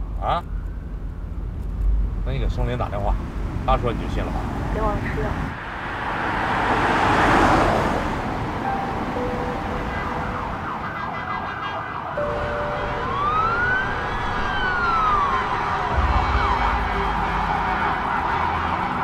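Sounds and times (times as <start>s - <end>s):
traffic noise: 0.0s - 19.0s
car passing: 1.9s - 19.0s
emergency vehicle siren: 5.5s - 19.0s.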